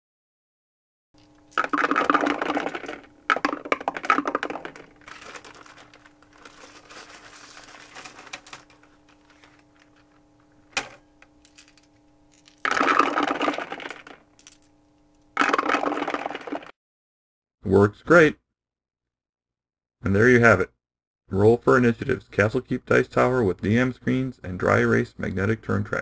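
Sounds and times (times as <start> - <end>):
dice clattering: 1.2 - 6.8, 11.4 - 14.7, 15.4 - 16.7.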